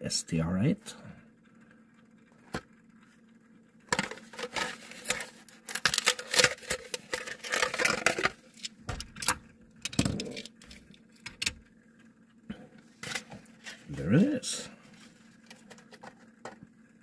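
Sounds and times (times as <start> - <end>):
plastic packaging crinkling: 4.0 - 9.3.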